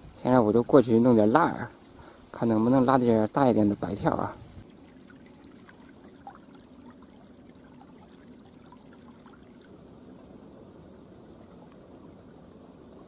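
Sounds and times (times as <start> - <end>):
water trickling in a stream: 0.1 - 13.0
small ticks: 11.4 - 12.2.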